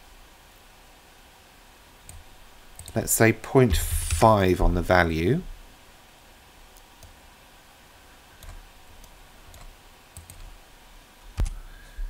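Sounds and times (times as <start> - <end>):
computer mouse clicks: 2.0 - 3.0, 8.4 - 10.5.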